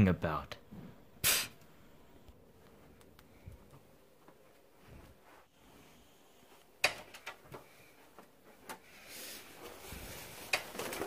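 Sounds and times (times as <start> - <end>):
sharp clicks and knocks: 6.8 - 7.6
fabric rustle: 7.4 - 11.0.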